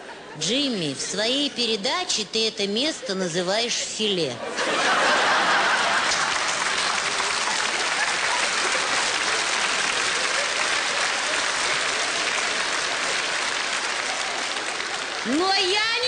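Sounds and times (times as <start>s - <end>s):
audience laughter: 4.3s - 15.0s
audience applauding: 5.2s - 16.0s.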